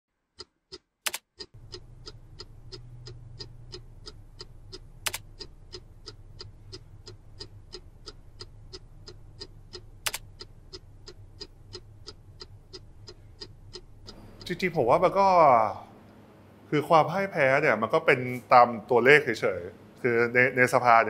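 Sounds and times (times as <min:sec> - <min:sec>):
regular ticking: 0:00.2 - 0:16.7
sharp click: 0:00.4 - 0:01.6, 0:05.0 - 0:05.5, 0:09.7 - 0:10.4
low steady hum: 0:01.5 - 0:21.0.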